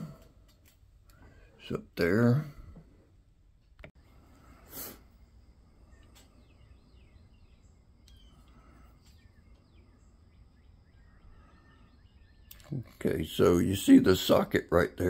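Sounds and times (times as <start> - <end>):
faint bird chirps: 4.0 - 14.0.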